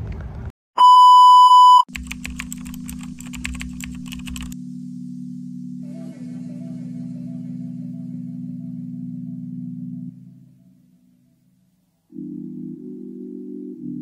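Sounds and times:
electronic beep: 0:00.8 - 0:01.9
keyboard typing clicks: 0:01.9 - 0:04.6
background music: 0:02.0 - 0:14.0.

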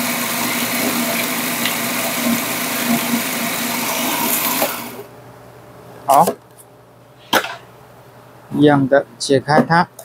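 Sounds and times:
food processor grinding: 0:00.0 - 0:05.1
motor winding down: 0:00.0 - 0:05.1.

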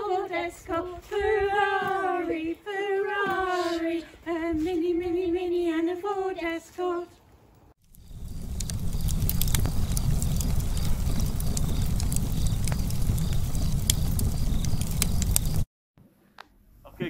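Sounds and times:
wood fire crackling and popping: 0:07.8 - 0:15.7.

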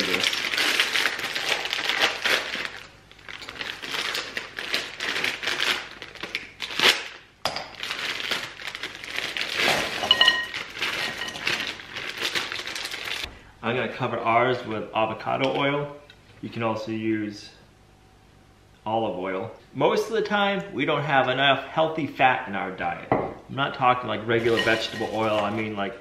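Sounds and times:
plastic bags crinkling: 0:00.0 - 0:13.3, 0:24.3 - 0:25.9
frozen vegetables clattering into bowl: 0:07.7 - 0:13.2, 0:24.4 - 0:25.7.

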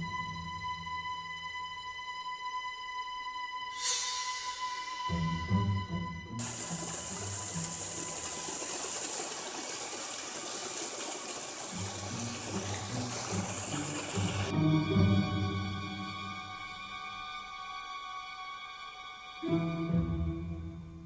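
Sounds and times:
small waterfall splashing: 0:06.4 - 0:14.5.

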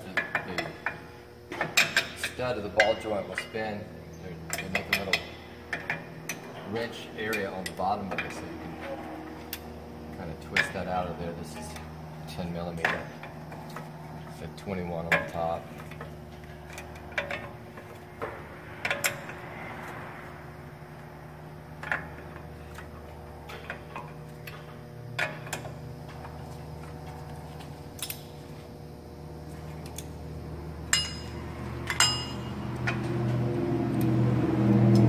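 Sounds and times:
steady low hum: 0:00.0 - 0:35.0
sharp metal clinks: 0:30.9 - 0:32.6.

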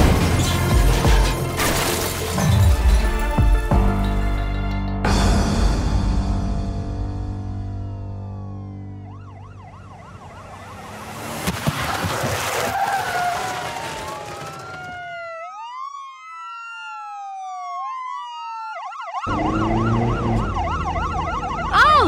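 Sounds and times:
car crash bangs and scraping: 0:00.0 - 0:02.8, 0:10.9 - 0:15.2
ambulance siren: 0:08.1 - 0:11.5, 0:12.6 - 0:22.0.

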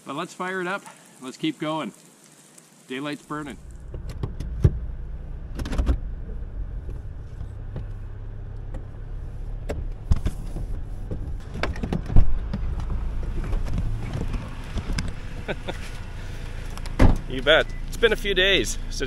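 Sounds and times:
tractor diesel engine running: 0:03.6 - 0:19.0
knocks and clatters: 0:03.8 - 0:04.9, 0:05.5 - 0:15.9.

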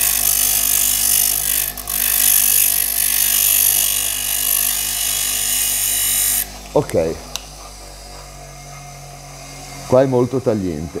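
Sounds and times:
grinder wheel grinding steel screw: 0:00.0 - 0:06.5.

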